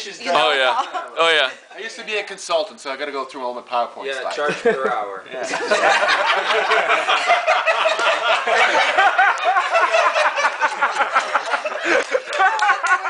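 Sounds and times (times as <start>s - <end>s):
people laughing: 0.3s - 1.6s, 4.2s - 13.0s.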